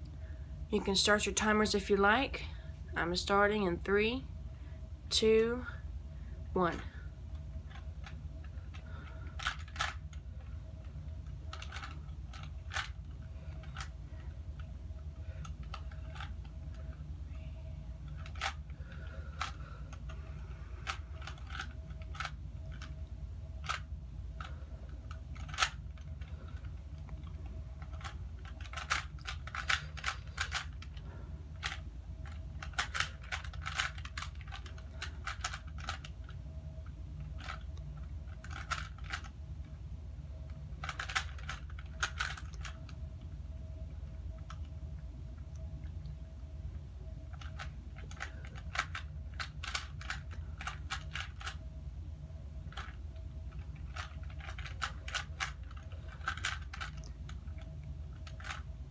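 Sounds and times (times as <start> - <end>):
plastic puzzle cube clicking: 7.7 - 10.2, 11.5 - 13.0, 18.1 - 20.2, 20.8 - 23.0, 23.6 - 26.8, 27.8 - 31.0, 31.6 - 36.4, 37.3 - 39.3, 40.5 - 43.0, 47.3 - 51.6, 52.7 - 58.7.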